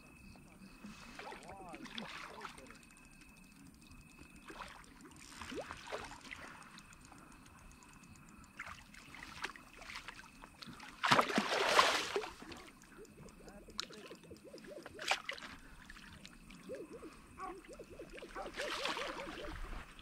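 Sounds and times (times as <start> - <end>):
water splashing: 1.1 - 2.9, 4.4 - 6.9, 8.6 - 20.0.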